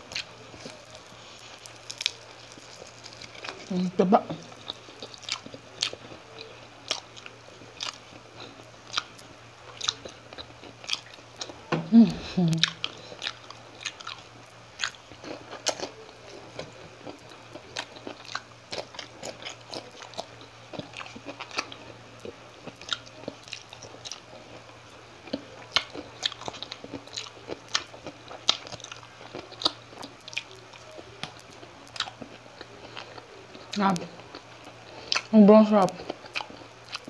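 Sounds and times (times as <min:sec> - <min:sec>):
wet chewing and crunching: 0:00.0 - 0:11.6, 0:12.5 - 0:37.0
person humming low: 0:11.8 - 0:12.7.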